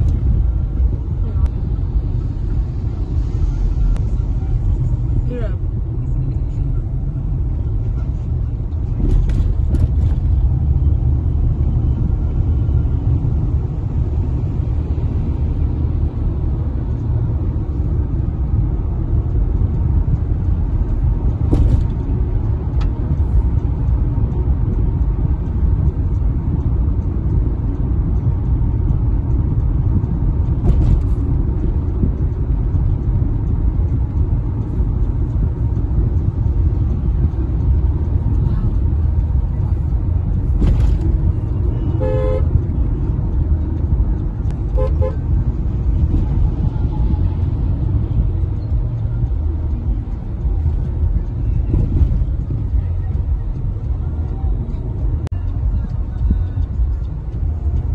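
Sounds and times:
road and engine rumble in car: 0.0 - 57.9
car horn toots: 41.7 - 42.7, 44.7 - 45.3.

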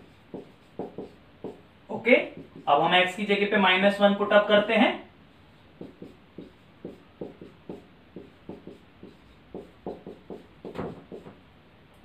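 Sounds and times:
marker writing on whiteboard: 0.0 - 2.9, 5.7 - 11.4.

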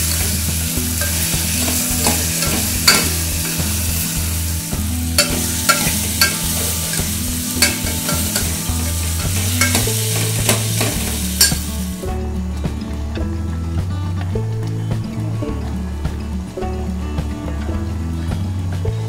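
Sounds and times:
ladle scraping metal pot: 0.0 - 12.0
vegetables sizzling in oil: 0.0 - 12.1
gravy boiling: 0.0 - 12.8.

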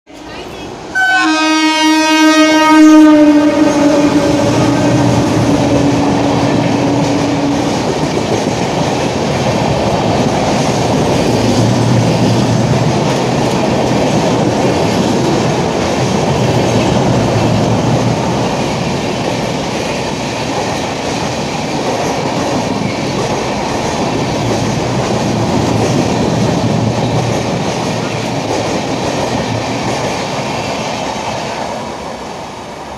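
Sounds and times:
passing train coaches rattling: 0.1 - 32.9
train horn blast: 0.9 - 7.9.

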